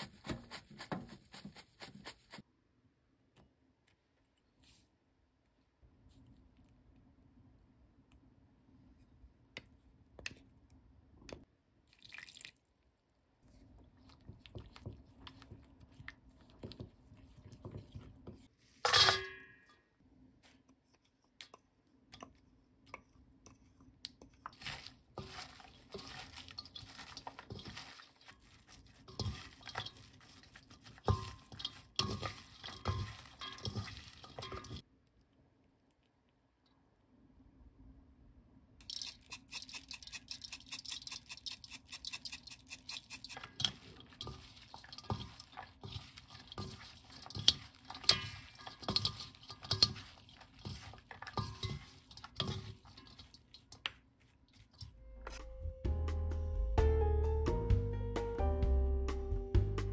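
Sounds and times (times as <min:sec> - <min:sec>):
wet rustling and squishing: 0:11.9 - 0:18.6, 0:24.4 - 0:34.9, 0:38.8 - 0:55.0
paste stirred in glass bowl: 0:13.5 - 0:18.5, 0:23.4 - 0:34.8, 0:38.8 - 0:55.0.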